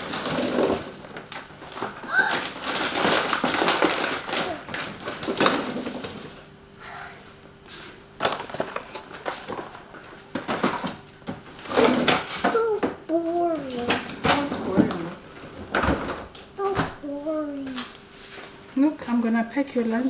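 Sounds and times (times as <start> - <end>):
kitchen items clicking and knocking: 0.0 - 6.2, 8.2 - 16.5
packaging rustling: 0.0 - 6.4, 8.2 - 12.7
faint steady hum: 0.0 - 20.0.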